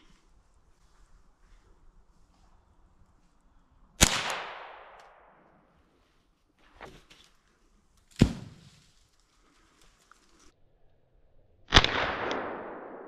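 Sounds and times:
gunshots echoing: 4.0 - 5.4, 11.7 - 13.0.

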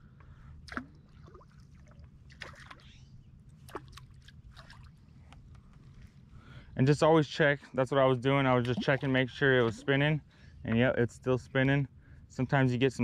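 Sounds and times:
low steady background noise: 0.0 - 13.0
small water splashes and trickling: 0.6 - 5.3, 8.5 - 10.1.

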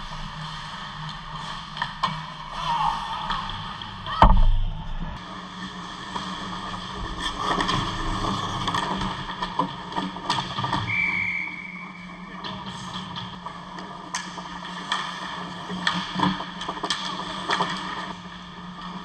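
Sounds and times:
low hum: 0.0 - 9.9
loud heavy thud: 4.2 - 5.1.

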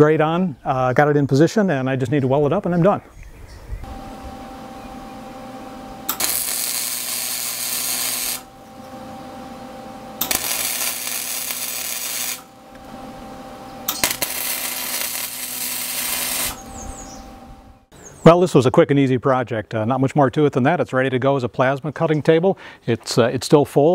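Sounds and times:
welder arc crackling: 3.8 - 17.9
welder hum: 3.8 - 17.9.

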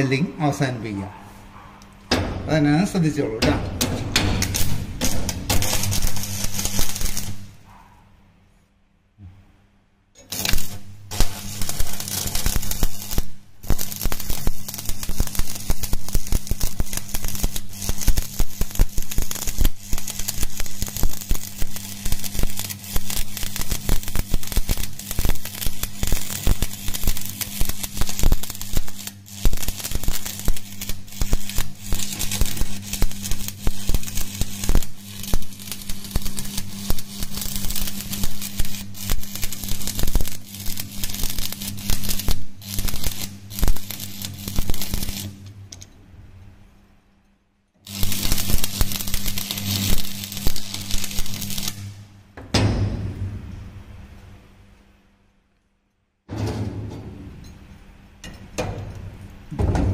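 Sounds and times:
welding arc crackling: 2.4 - 7.7, 10.2 - 45.6, 47.8 - 52.2.

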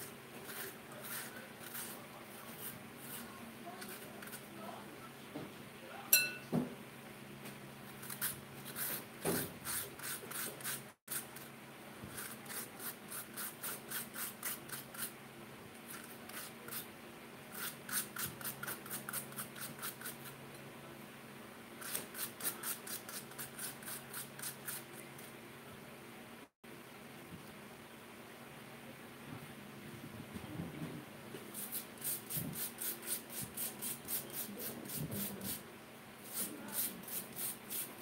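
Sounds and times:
metal spoon scraping potato: 0.0 - 4.5, 17.5 - 20.4
sharp clink: 6.1 - 6.5.

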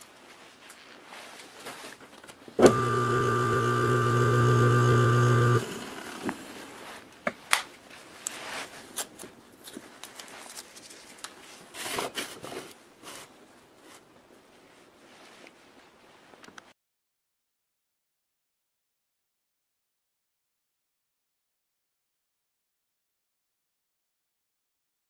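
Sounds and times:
electric motor humming: 2.6 - 6.6.

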